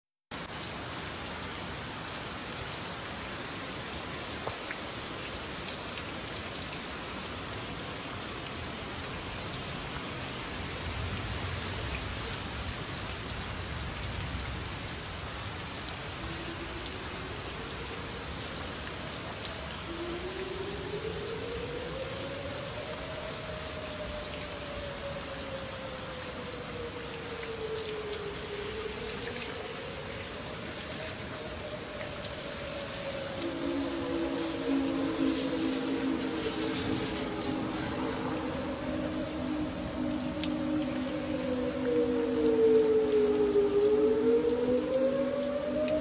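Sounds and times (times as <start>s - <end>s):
heavy rain pattering: 0.3s - 46.0s
warning siren winding up: 19.9s - 46.0s.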